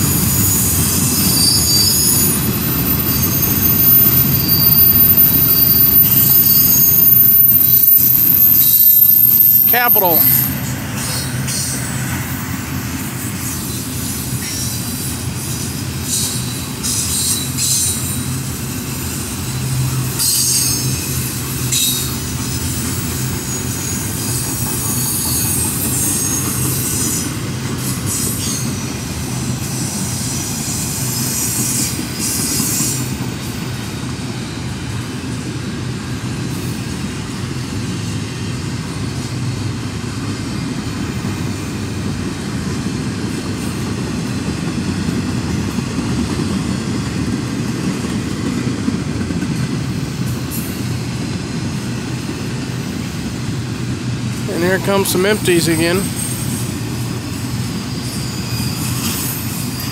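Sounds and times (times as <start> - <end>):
train wheels rumbling on rail: 0.0 - 59.9
high-pitched wheel squeal: 0.1 - 11.7, 21.7 - 27.3, 57.7 - 59.9.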